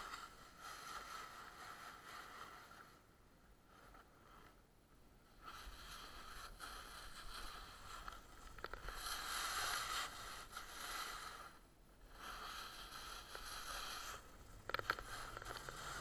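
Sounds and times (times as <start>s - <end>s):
snowboard scraping over snow: 12.2s - 16.0s.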